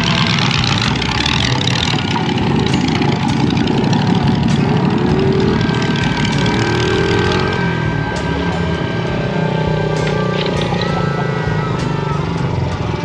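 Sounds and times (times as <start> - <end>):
engine running steadily: 0.0 - 13.0.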